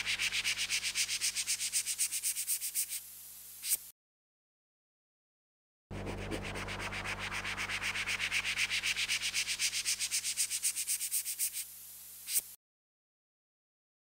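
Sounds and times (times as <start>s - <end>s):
low steady hum: 5.9s - 8.5s.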